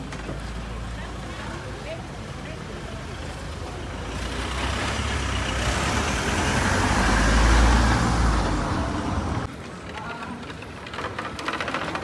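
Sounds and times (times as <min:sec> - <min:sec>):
vehicle driving past: 0:04.0 - 0:09.5.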